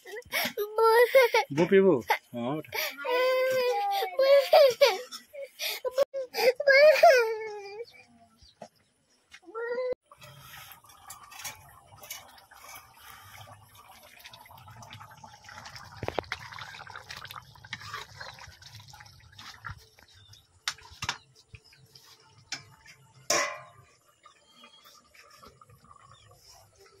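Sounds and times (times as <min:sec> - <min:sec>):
curry bubbling in a pan: 0:10.0 - 0:27.0
metal utensils clinking: 0:10.9 - 0:12.9, 0:23.3 - 0:23.9.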